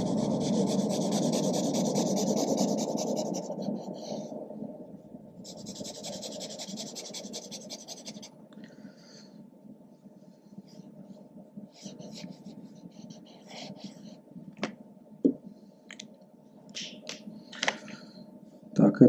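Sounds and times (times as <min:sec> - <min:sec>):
marker scratching on paper: 0:00.0 - 0:03.7, 0:05.5 - 0:08.3, 0:11.8 - 0:14.0.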